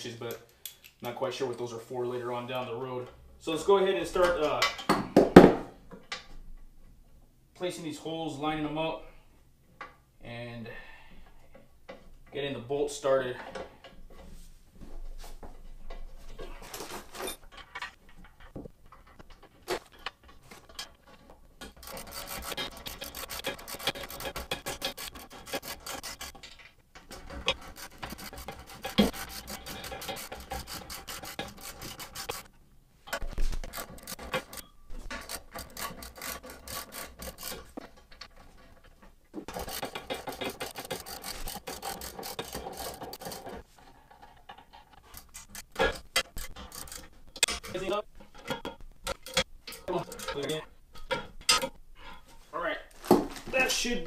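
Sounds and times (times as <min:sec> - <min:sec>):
ratchet wrench clicking: 0:21.7 - 0:26.3, 0:33.7 - 0:37.6.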